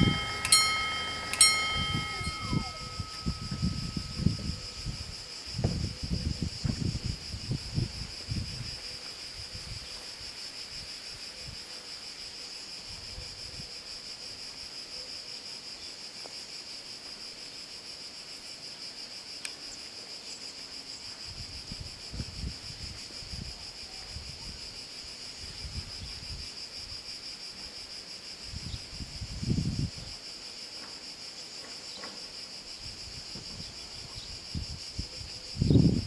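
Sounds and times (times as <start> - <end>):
wind buffeting microphone: 0.0 - 9.9, 21.2 - 24.8, 25.4 - 27.0, 28.4 - 30.2, 32.8 - 36.0
cicadas buzzing: 0.0 - 36.0.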